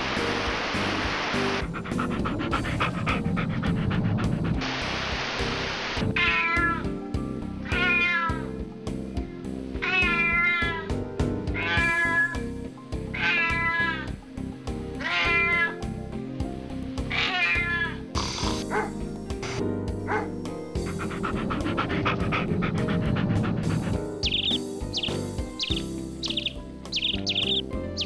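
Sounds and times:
background music: 0.0s - 28.0s
cat meowing: 6.1s - 6.9s, 7.6s - 8.6s, 9.8s - 10.9s, 11.6s - 12.4s, 13.2s - 14.1s, 15.0s - 15.8s, 17.1s - 18.0s.

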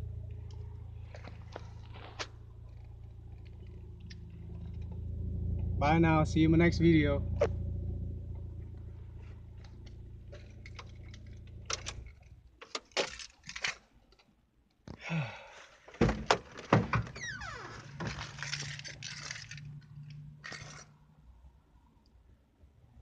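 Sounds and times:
car engine idling: 0.0s - 12.9s
clicks and knocks inside car: 15.9s - 17.2s.

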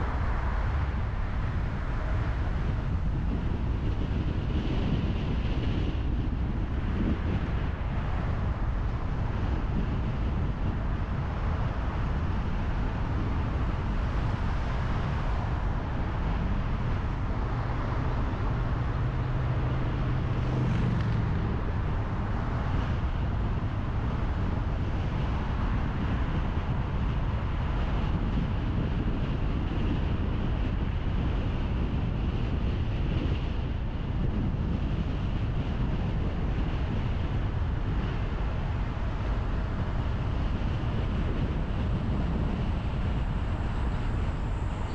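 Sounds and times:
low engine note: 0.0s - 25.1s
car driving on road: 0.0s - 44.9s.

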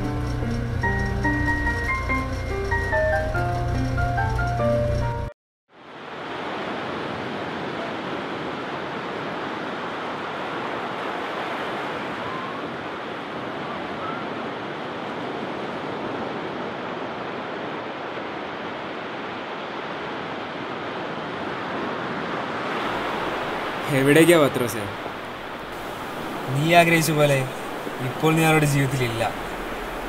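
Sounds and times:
waves breaking on beach: 5.8s - 30.0s.

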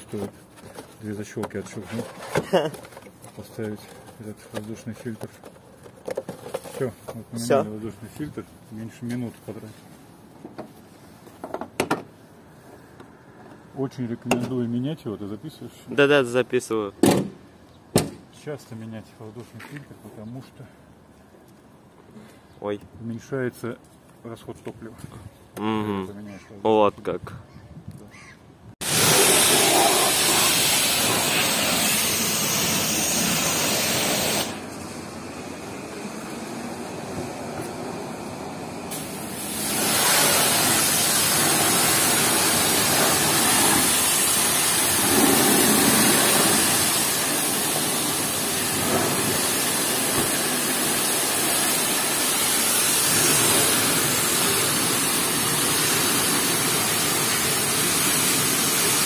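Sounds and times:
pressure washer spraying car: 28.8s - 59.0s.

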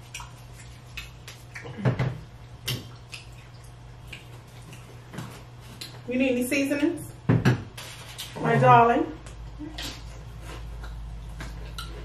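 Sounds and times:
wet chewing and smacking: 0.0s - 6.1s, 9.2s - 12.0s
faint steady hum: 0.0s - 12.0s.

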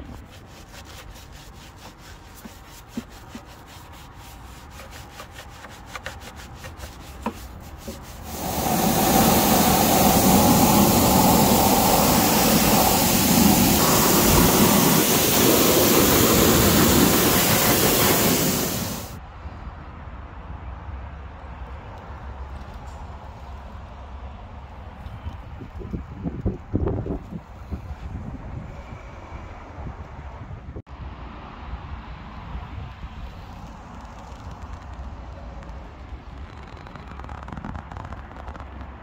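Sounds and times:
brush scrubbing foam: 0.0s - 19.2s
pressure washer spraying water: 8.1s - 19.2s.

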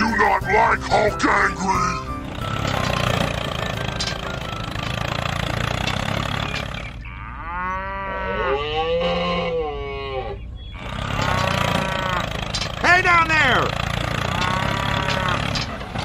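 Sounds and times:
tractor engine running: 0.0s - 7.2s, 10.7s - 16.0s
cow mooing: 6.1s - 12.7s, 13.4s - 15.8s.

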